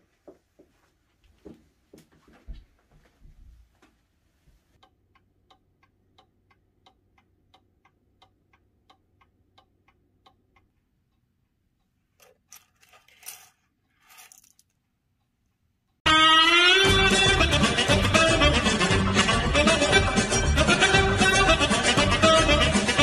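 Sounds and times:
mantel clock ticking: 4.8s - 12.0s
keys jingling: 12.2s - 14.7s.

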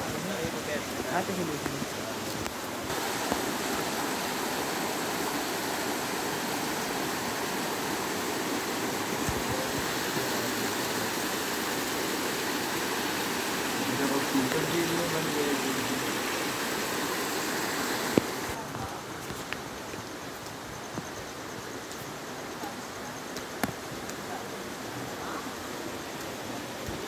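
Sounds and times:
rushing water: 0.0s - 19.4s, 23.2s - 27.0s.

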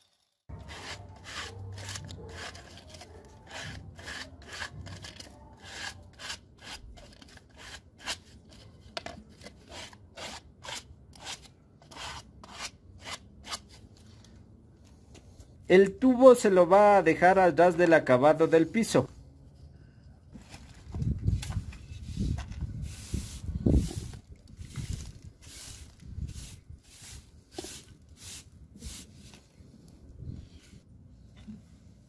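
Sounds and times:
sandpaper scraping pipe: 0.5s - 8.8s, 9.5s - 13.8s, 21.8s - 29.5s.

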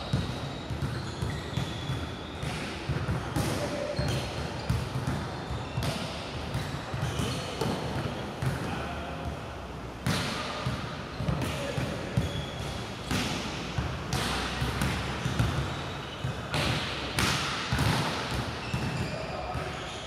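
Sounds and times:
balls bouncing on hard floor: 10.0s - 19.8s.

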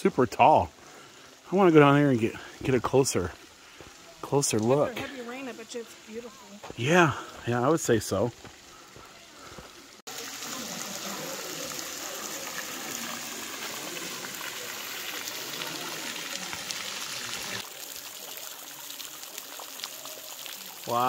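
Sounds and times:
waterfall rushing water: 9.7s - 21.0s.

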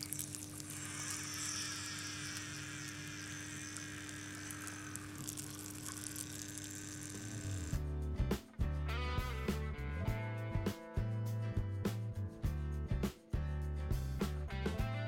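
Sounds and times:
electrical hum: 0.0s - 8.0s.

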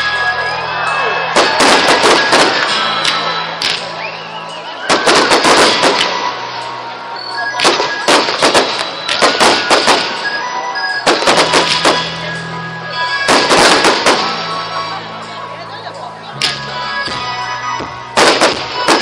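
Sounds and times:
fireworks crackling: 0.0s - 15.5s, 18.1s - 19.0s
background music: 0.0s - 19.0s
firework launch bangs: 1.3s - 3.9s, 4.9s - 6.4s, 7.6s - 10.4s, 11.0s - 12.4s, 13.3s - 14.6s, 18.2s - 19.0s.

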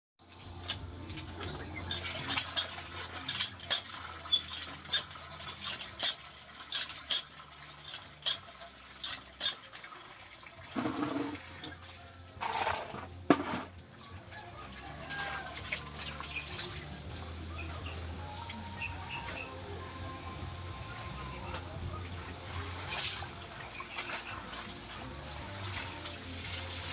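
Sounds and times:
hand pump clanking: 0.4s - 9.7s, 10.8s - 11.8s, 12.4s - 13.7s
water gushing into basin: 1.3s - 17.4s, 18.2s - 26.9s.

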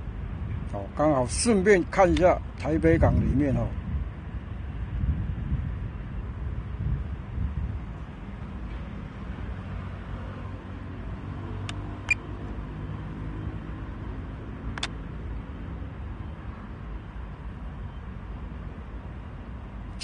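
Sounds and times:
sharp clicks: 14.7s - 15.0s.

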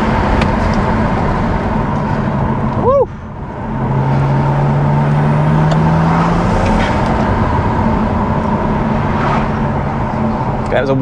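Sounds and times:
car engine accelerating: 0.0s - 11.0s
road noise: 0.0s - 11.0s.

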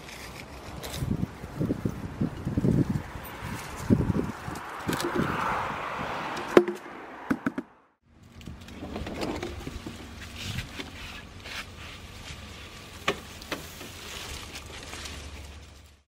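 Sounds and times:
dry leaves rustling and crackling: 0.0s - 5.5s, 9.6s - 16.0s.

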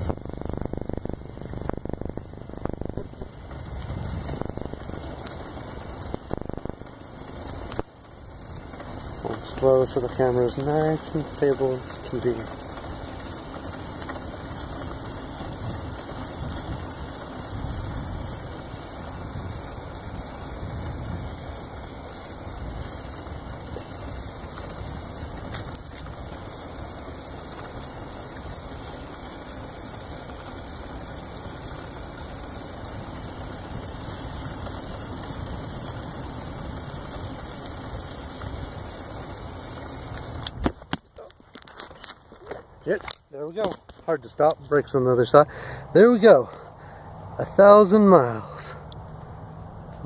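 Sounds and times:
electric motor high-pitched whine: 0.0s - 40.7s
road rumble: 0.0s - 50.0s.

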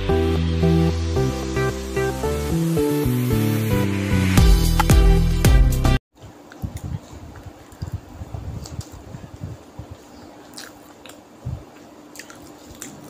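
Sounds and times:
chewing food: 6.4s - 13.0s.

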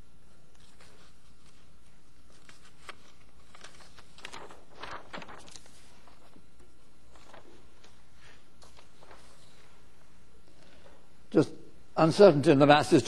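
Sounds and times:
low steady hum: 0.0s - 13.0s
paper rustling and shuffling: 0.5s - 9.8s.

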